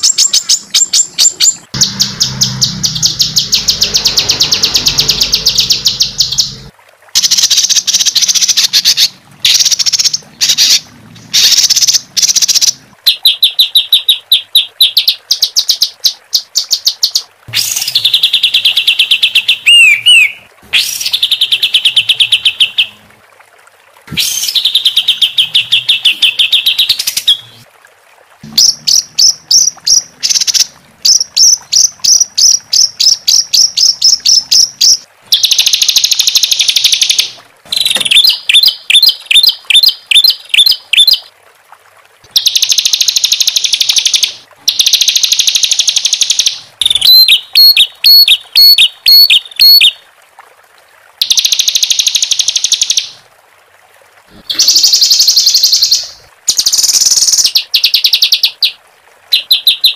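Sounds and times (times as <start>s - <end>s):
songbird singing harsh trills: 11.4s - 23.0s, 45.9s - 49.9s.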